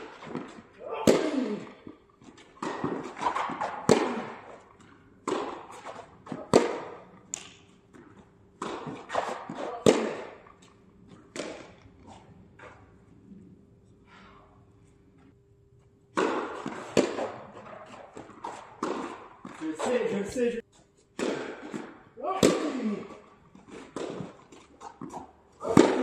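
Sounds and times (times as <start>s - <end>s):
tennis ball bouncing on court: 2.3s - 11.9s, 16.1s - 19.9s, 23.7s - 26.0s
tennis ball struck by rackets: 2.4s - 10.6s, 11.3s - 11.9s, 16.1s - 20.0s, 21.2s - 26.0s.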